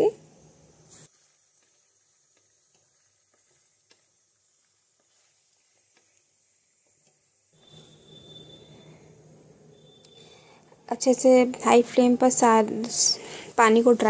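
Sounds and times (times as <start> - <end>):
chicken frying in oil: 0.0 - 9.0
oil popping: 1.1 - 7.8.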